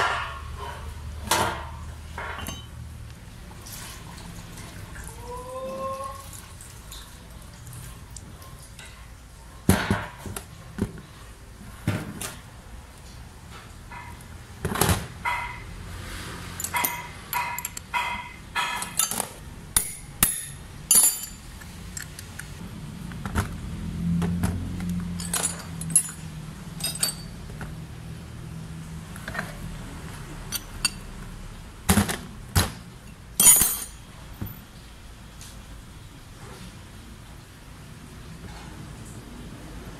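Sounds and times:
metal tools clinking on workbench: 2.2s - 2.7s, 16.6s - 22.3s, 25.1s - 27.4s, 30.5s - 31.1s, 33.4s - 34.0s.

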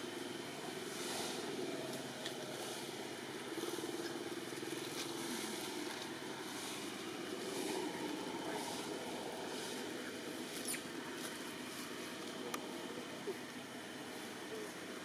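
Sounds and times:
outdoor background noise: 0.0s - 15.0s.

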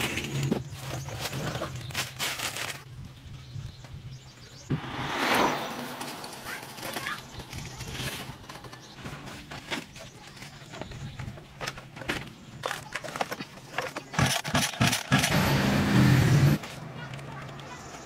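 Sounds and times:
loud rough sound: 4.7s - 9.2s
metal and plastic clattering: 6.7s - 15.4s.

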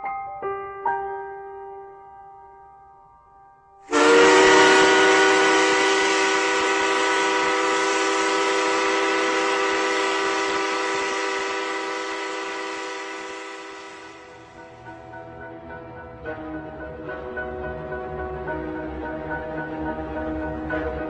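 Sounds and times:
train hiss: 3.9s - 14.8s
locomotive horn chord: 3.9s - 14.9s.

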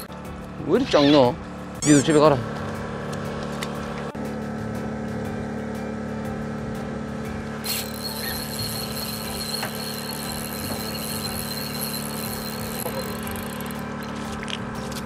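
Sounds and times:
low hum from boat: 1.4s - 15.0s
fishing reel squealing: 7.6s - 13.8s.

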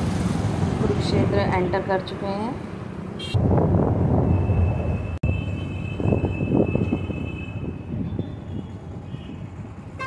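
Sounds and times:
road noise: 0.0s - 10.0s
wind buffeting microphone: 3.4s - 5.0s.

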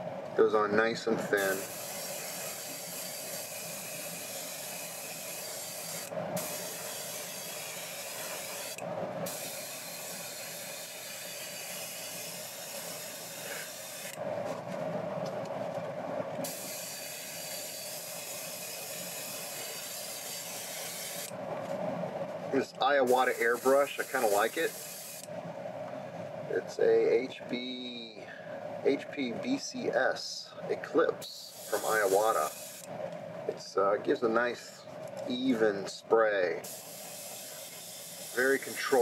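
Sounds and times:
airbrush hissing: 1.3s - 14.2s, 16.4s - 21.3s, 22.9s - 25.3s, 31.2s - 32.9s, 36.6s - 39.0s.

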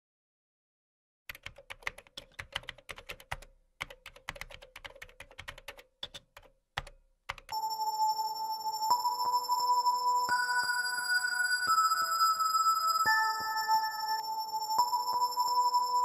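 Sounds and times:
typing on a keyboard: 1.3s - 7.6s
music of held tones: 7.6s - 16.0s.

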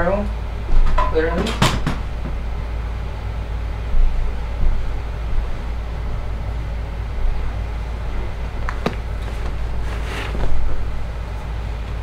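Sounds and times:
low mechanical hum: 0.0s - 12.0s
clothes rustling: 8.3s - 11.5s
laundry basket plastic knocks: 8.6s - 9.6s.

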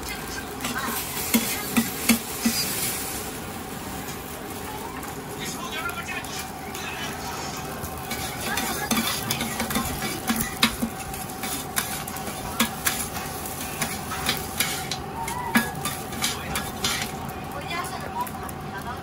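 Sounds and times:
food sizzling in a wok: 0.0s - 19.0s
metal spatula scraping a wok: 0.6s - 3.2s, 7.3s - 17.2s.

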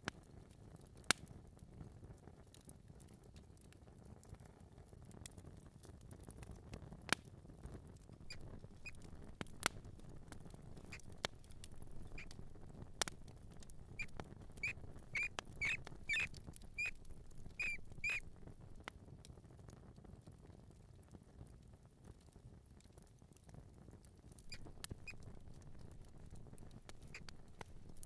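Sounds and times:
faint low rumble: 8.1s - 18.9s, 24.3s - 28.0s
mouse squeaking: 8.3s - 9.6s, 10.7s - 18.3s, 24.4s - 28.0s.

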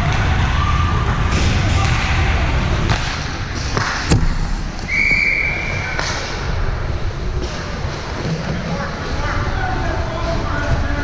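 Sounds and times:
sharp knock: 3.8s - 4.6s
referee's whistle blast: 4.9s - 6.0s.

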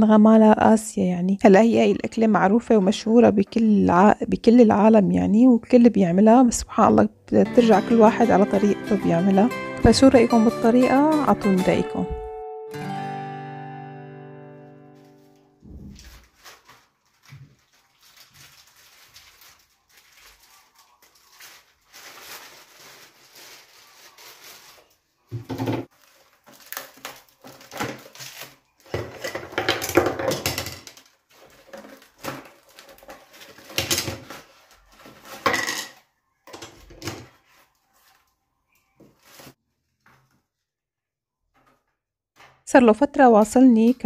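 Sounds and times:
plastic bag rustling and crinkling: 15.0s - 36.1s, 36.7s - 40.6s.

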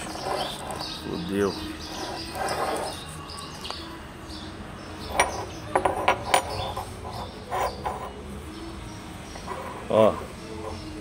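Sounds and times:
metal gear clicking on concrete: 5.1s - 8.2s.

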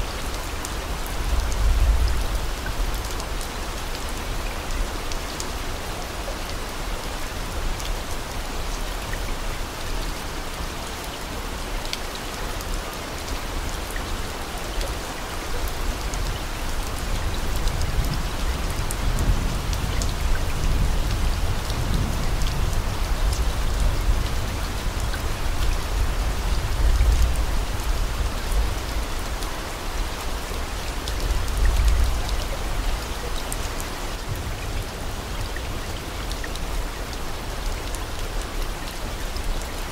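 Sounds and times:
steady rain hiss: 0.0s - 39.9s.

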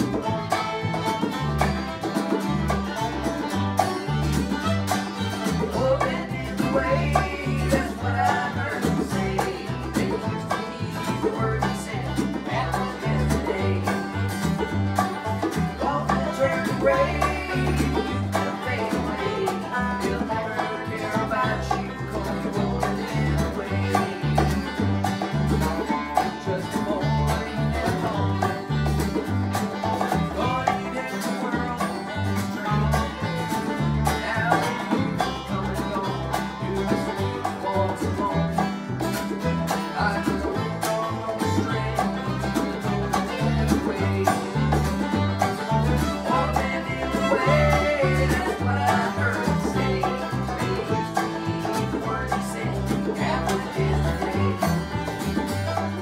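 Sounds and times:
acoustic guitar strumming: 0.0s - 56.0s
banjo picking: 0.0s - 56.0s
upright bass line: 0.0s - 56.0s.

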